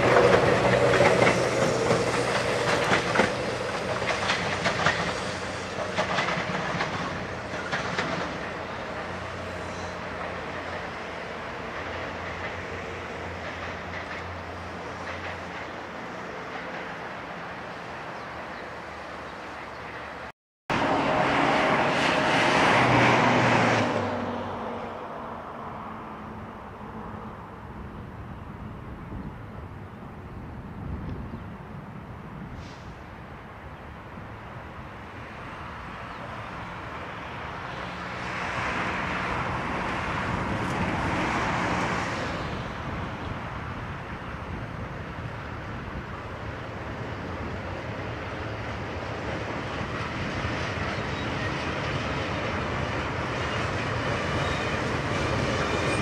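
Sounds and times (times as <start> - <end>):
train wheels on rails: 0.0 - 25.0, 34.2 - 56.0
broad rushing noise: 0.0 - 27.8
diesel locomotive engine drone: 0.0 - 56.0
electric train rumbling past: 0.0 - 56.0.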